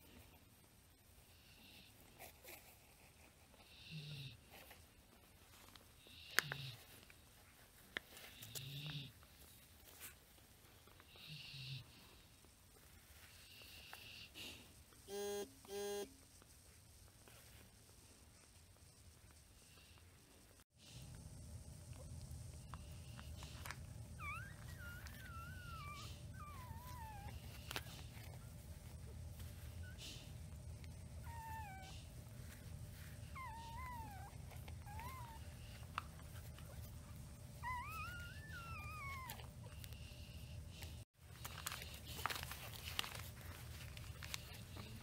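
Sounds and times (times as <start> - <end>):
steady low hum: 0.0 - 45.0
puppies whining and squeaking: 22.7 - 45.0.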